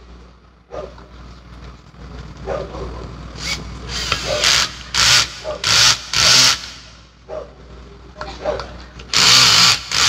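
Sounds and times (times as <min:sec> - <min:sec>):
cordless drill bursts: 0:03.4 - 0:06.9, 0:09.1 - 0:10.0.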